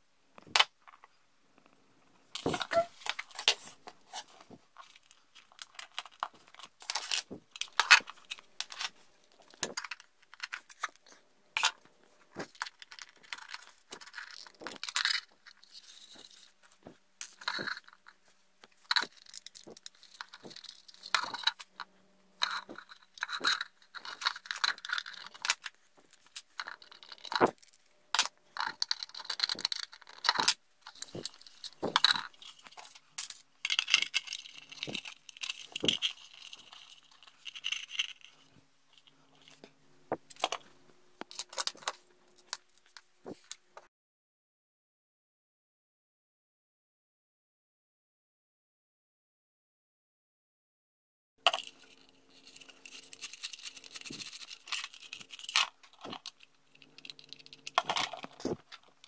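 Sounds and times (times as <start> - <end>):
hands handling plastic and metal parts: 2.2 - 43.6, 51.4 - 59.0.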